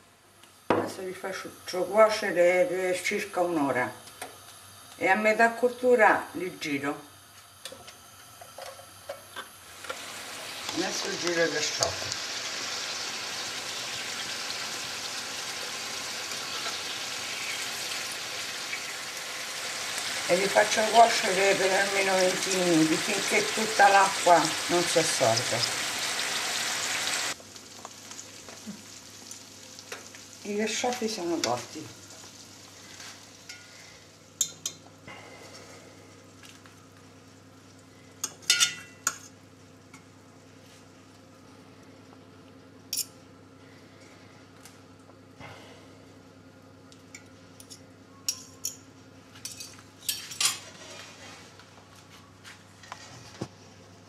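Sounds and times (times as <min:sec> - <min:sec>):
artichokes sizzling in pan: 0:01.0 - 0:40.9
cutlery clinking on metal dishes: 0:38.2 - 0:39.3.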